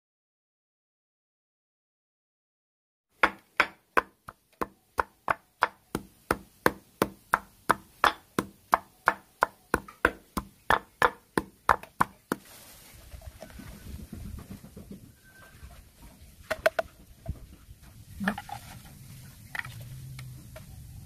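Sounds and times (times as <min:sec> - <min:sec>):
wooden pestle pounding in mortar: 0:03.2 - 0:12.4.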